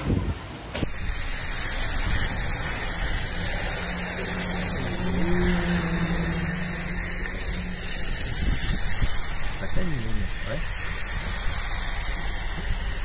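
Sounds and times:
low engine rumble: 0.0s - 13.0s
tyre hiss on wet pavement: 0.0s - 13.0s.

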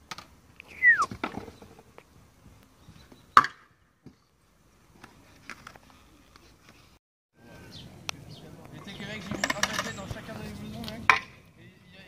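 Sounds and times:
scooter clacking on concrete: 9.0s - 10.4s.

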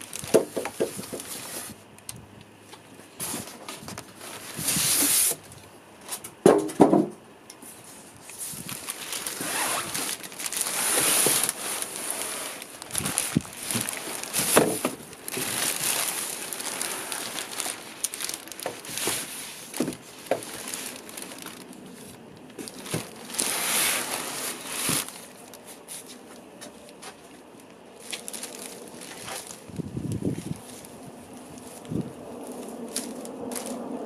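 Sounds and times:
plastic bag crinkling: 0.0s - 1.8s, 8.2s - 34.0s
knocks on cardboard box: 6.4s - 7.1s.

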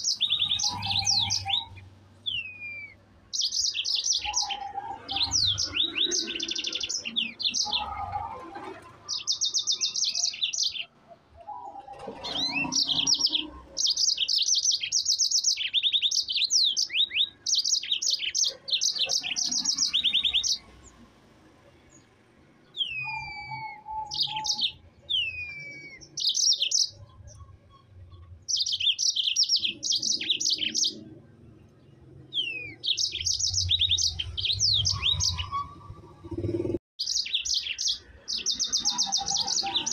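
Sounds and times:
canary singing trills: 0.0s - 39.9s.

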